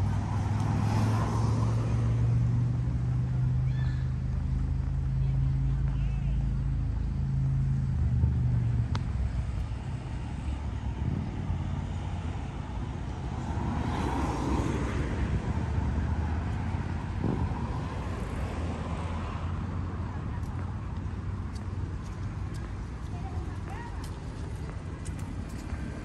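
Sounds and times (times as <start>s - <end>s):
low engine rumble: 0.0s - 13.6s
outdoor noise: 0.0s - 26.0s.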